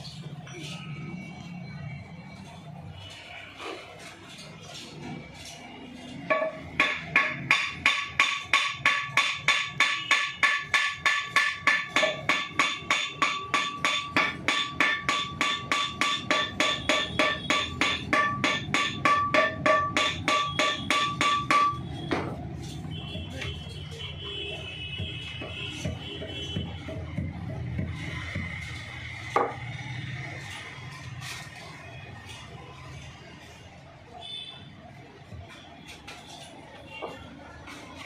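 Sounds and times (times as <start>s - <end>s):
hammer striking metal: 6.3s - 22.4s.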